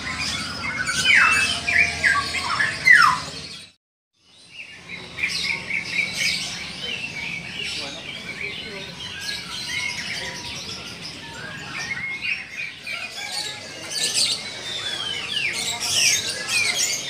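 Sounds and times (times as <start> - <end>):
songbirds chirping and singing: 0.0 - 17.0.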